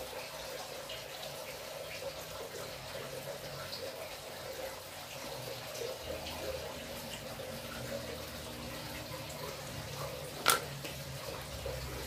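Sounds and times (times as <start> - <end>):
tool set down on tile floor: 10.4 - 10.7.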